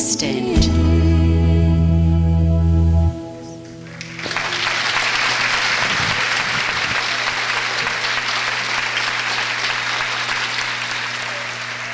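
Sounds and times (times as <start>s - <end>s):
audience applauding: 3.9s - 11.9s.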